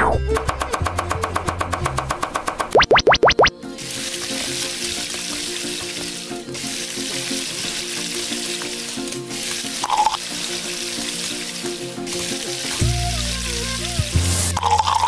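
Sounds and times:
meat sizzling in hot oil: 3.8s - 15.0s.

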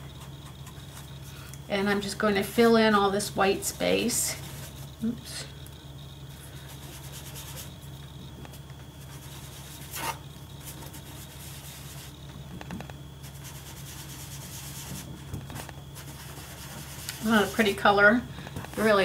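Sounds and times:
steady low hum: 0.0s - 19.0s
sponge rubbing on cardstock: 6.6s - 7.8s, 13.2s - 17.6s.

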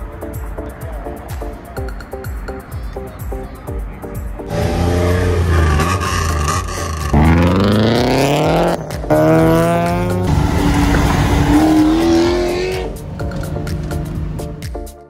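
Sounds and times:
car engines accelerating hard: 4.5s - 14.8s.

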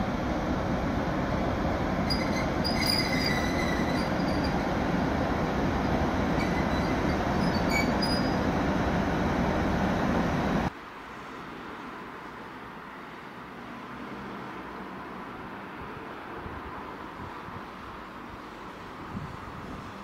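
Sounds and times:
electric locomotive rumbling: 0.0s - 10.7s
high wheel squeals: 2.0s - 4.6s, 6.4s - 8.4s.

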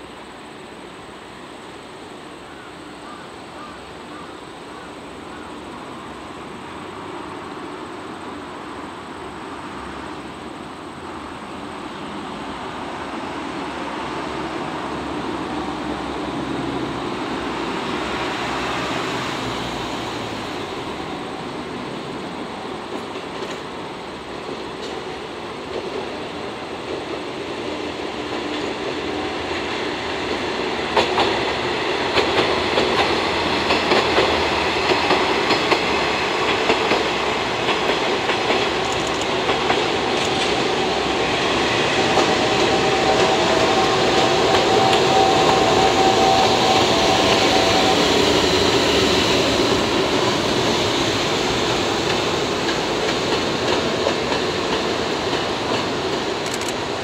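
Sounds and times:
train wheels clicking over rail joints: 22.0s - 57.0s.

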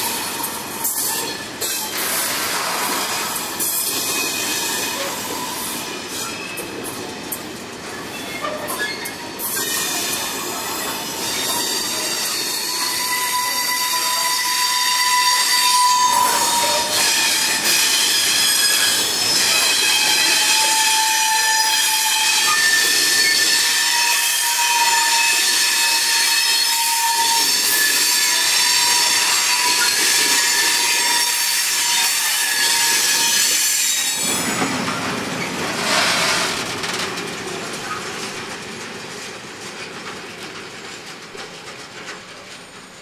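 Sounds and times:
train wheels squealing: 0.0s - 6.8s, 7.9s - 34.7s
freight train rolling past: 0.0s - 43.0s.

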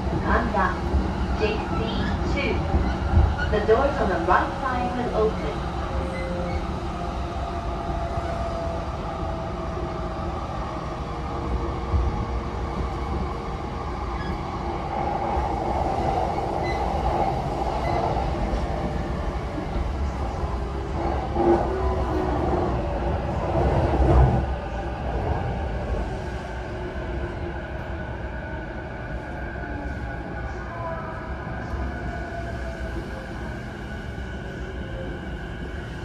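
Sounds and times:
train wheels rumbling on rail: 0.0s - 28.2s.

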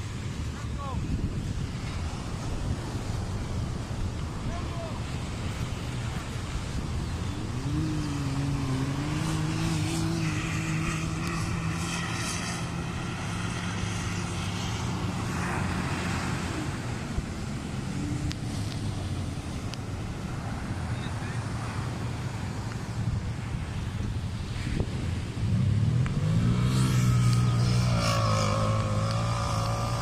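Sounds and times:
utility vehicle engine revving: 5.0s - 23.0s, 24.4s - 30.0s.

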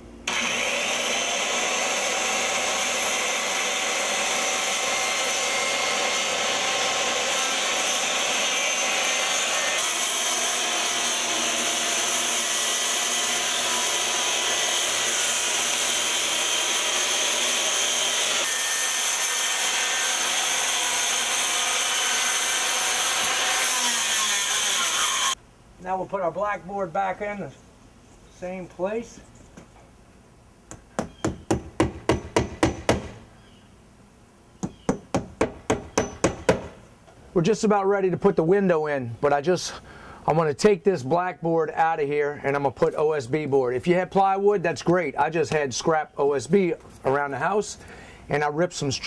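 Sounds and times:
circular saw cutting siding: 0.2s - 25.4s, 30.7s - 33.2s, 34.6s - 36.9s.

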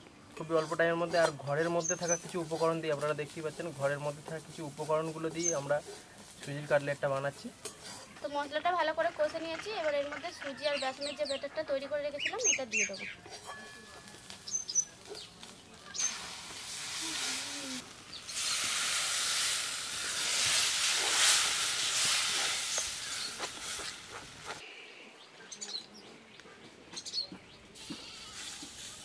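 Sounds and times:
batter sizzling in hot oil: 0.5s - 8.0s, 14.1s - 24.6s, 27.9s - 29.0s.

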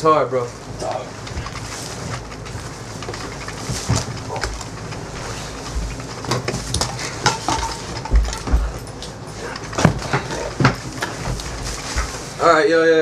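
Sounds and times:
bedding rustling: 0.0s - 13.0s
heavy thumps on a bed: 3.7s - 4.6s, 7.5s - 8.9s, 9.8s - 12.4s.

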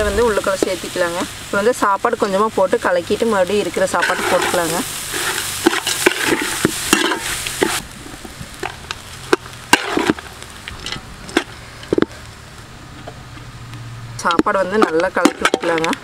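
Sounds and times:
oil sizzling: 0.0s - 16.0s
ladle scraping metal pot: 3.9s - 7.8s, 9.3s - 12.2s, 14.2s - 16.0s.

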